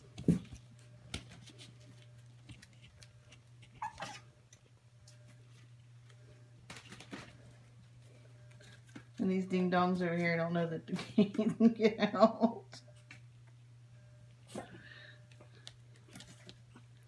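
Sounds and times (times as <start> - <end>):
steady low hum: 0.0 - 17.0
puppy squeak: 3.8 - 4.3.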